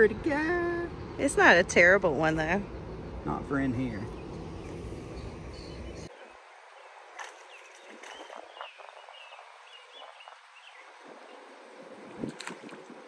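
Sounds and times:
wind rumble on microphone: 0:07.7 - 0:13.0.

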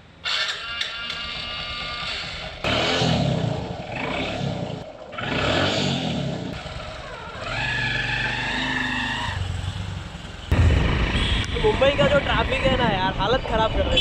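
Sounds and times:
motorcycle engine revving: 0:01.1 - 0:11.4.

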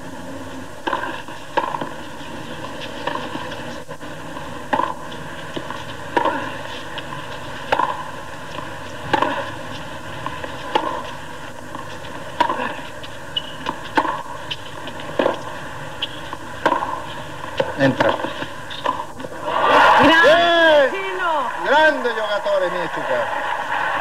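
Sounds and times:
steady background hiss: 0:00.0 - 0:24.0
racquets striking tennis ball: 0:00.8 - 0:19.4.

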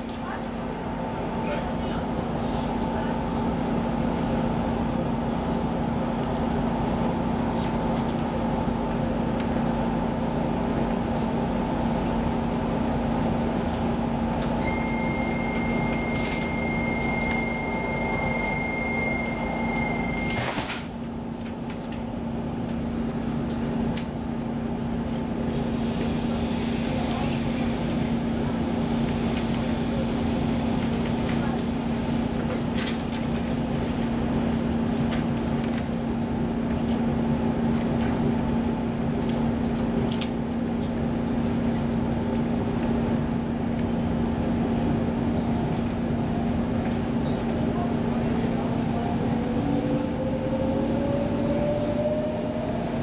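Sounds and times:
train electrical hum: 0:00.0 - 0:53.0
electronic warning tone: 0:14.6 - 0:20.4.

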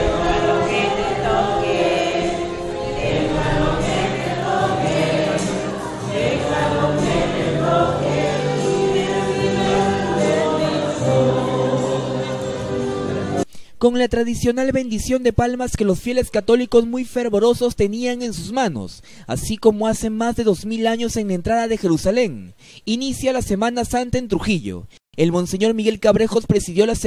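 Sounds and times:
choir singing a hymn: 0:00.0 - 0:13.4.

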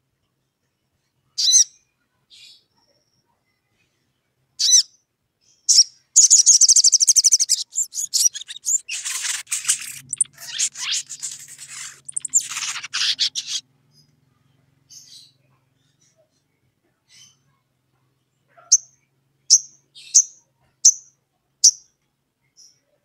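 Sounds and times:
bird chirping and trilling: 0:01.4 - 0:01.7, 0:04.6 - 0:05.0, 0:05.7 - 0:14.1
scratchy bird chattering: 0:05.7 - 0:13.6.

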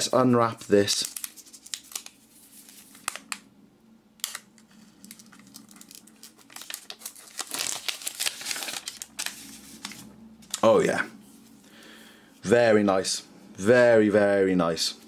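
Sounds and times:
plastic film peeling crinkle: 0:00.5 - 0:03.4, 0:04.2 - 0:10.7.

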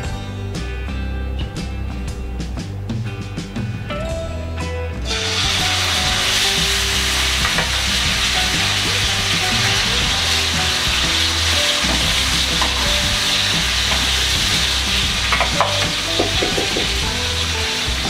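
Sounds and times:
chicken sizzling in hot oil: 0:05.1 - 0:18.0.

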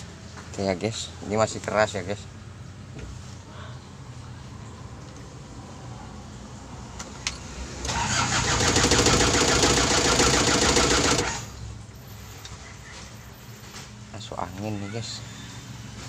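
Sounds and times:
diesel engine cranking: 0:07.0 - 0:11.8.

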